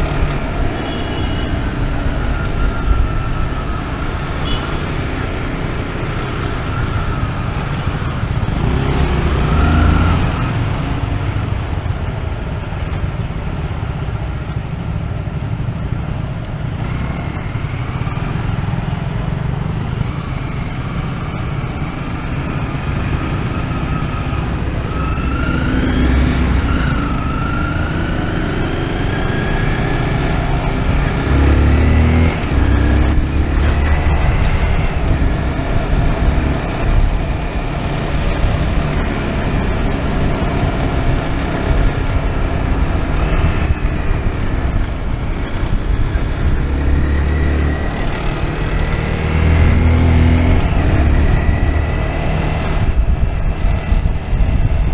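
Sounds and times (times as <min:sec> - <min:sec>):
motorcycle engine accelerating: 0:01.8 - 0:12.8, 0:16.5 - 0:54.9
wind buffeting microphone: 0:47.8 - 0:54.9.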